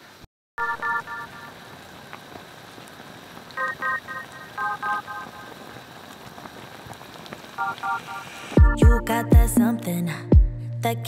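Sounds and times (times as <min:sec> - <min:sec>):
soup boiling and bubbling: 0:01.4 - 0:08.6.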